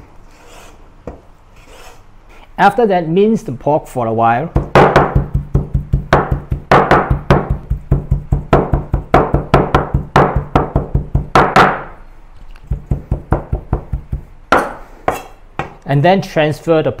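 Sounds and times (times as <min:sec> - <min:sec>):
cleaver chopping meat on board: 0:04.6 - 0:11.8.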